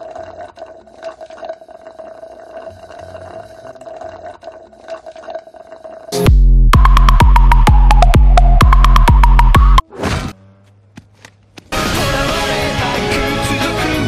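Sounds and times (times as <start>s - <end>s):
electronic music with heavy bass: 6.2s - 9.8s.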